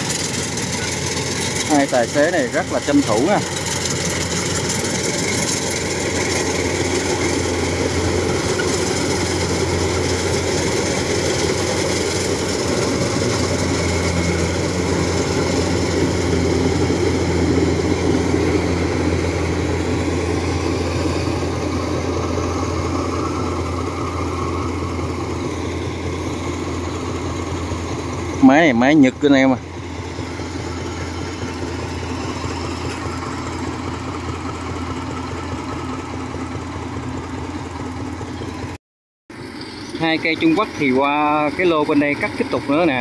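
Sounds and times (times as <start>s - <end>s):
combine harvester engine: 0.0s - 43.0s
water pump engine: 0.0s - 43.0s.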